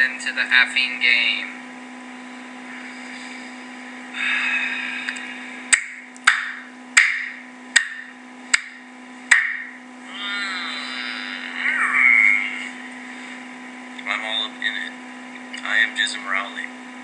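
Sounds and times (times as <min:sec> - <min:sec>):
steady electrical hum: 0:00.0 - 0:17.0
sharp knocks: 0:05.8 - 0:09.7.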